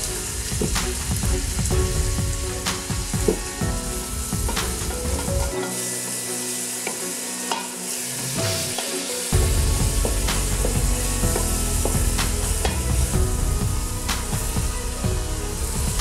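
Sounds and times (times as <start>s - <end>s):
vegetables sizzling in oil: 3.5s - 13.1s.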